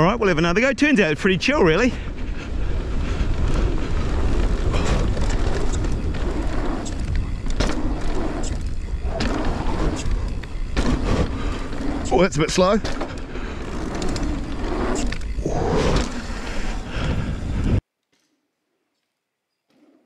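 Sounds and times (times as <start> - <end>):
bike rolling on dirt: 0.0 - 17.8
bike knocks and rattles: 3.0 - 15.4.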